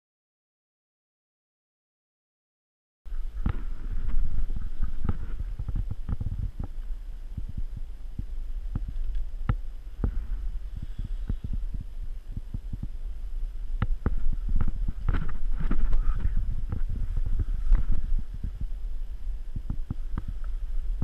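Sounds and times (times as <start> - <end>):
microphone handling knocks and rubs: 3.1 - 13.0, 13.8 - 18.8, 19.5 - 21.0
steady low rumble: 3.1 - 21.0.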